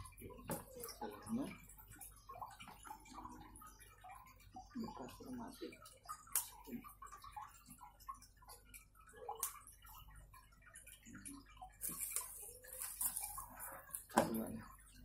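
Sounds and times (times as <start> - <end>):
fern fronds rustling: 11.8 - 14.4.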